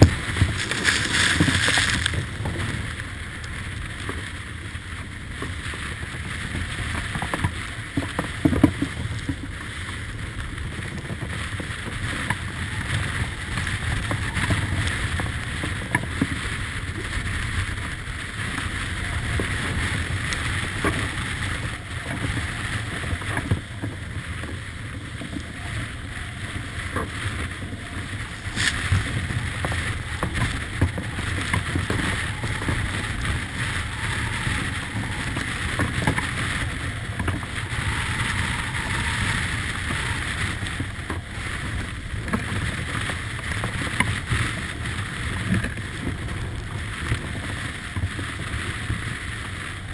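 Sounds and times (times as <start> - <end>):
spray breaking over boat: 0.0 - 2.8
rushing water: 0.0 - 8.1, 8.7 - 49.9
wind: 0.0 - 49.9.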